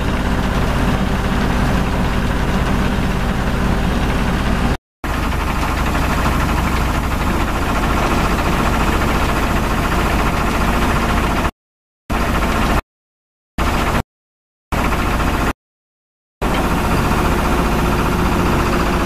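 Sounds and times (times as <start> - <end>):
drilling rig engine hum: 0.0 - 11.5, 14.7 - 15.6, 16.4 - 19.0.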